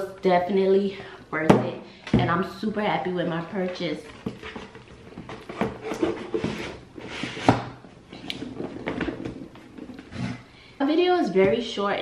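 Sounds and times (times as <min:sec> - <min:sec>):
cardboard boxes rustling: 0:04.0 - 0:10.5.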